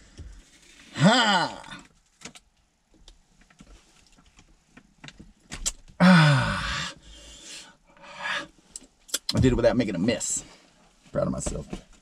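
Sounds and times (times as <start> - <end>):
man's loud wordless exclamation: 1.0 - 1.8, 6.0 - 6.9.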